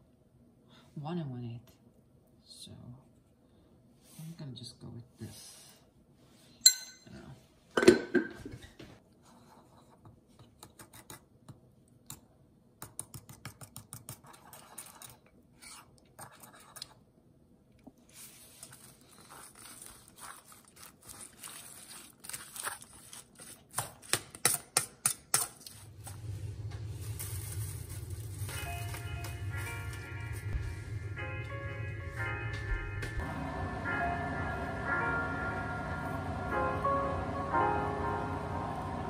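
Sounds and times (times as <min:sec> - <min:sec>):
utensil tossing cabbage in metal bowl: 0:18.4 - 0:25.8.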